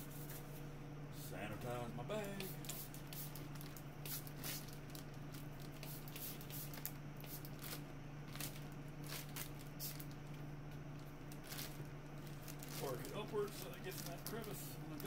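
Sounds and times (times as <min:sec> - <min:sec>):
flow hood humming: 0:00.0 - 0:15.0
spray bottle spritzing: 0:02.4 - 0:03.4, 0:04.0 - 0:04.6, 0:05.8 - 0:07.5
plastic bag crinkling: 0:03.3 - 0:15.0.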